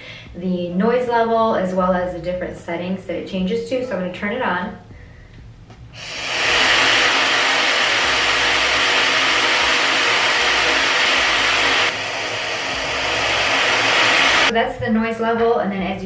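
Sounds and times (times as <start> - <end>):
hair dryer rushing air: 6.0 - 14.5.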